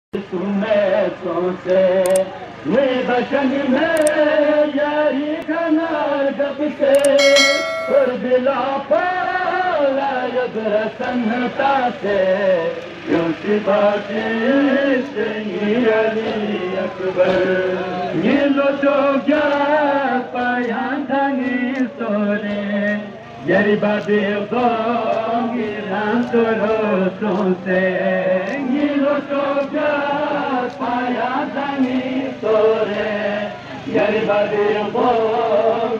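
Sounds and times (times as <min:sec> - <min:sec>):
bell-like ding: 0:07.0 - 0:08.2
men chanting a lament: 0:08.8 - 0:35.9.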